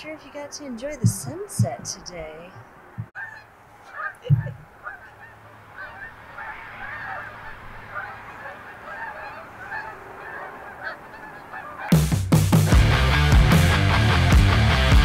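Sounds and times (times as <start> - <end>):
geese honking: 3.0 - 12.1
low thump: 4.3 - 4.6.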